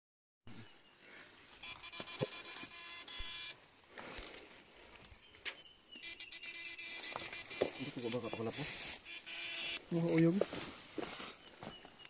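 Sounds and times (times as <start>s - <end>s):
high-pitched electronic whine: 6.0s - 10.0s.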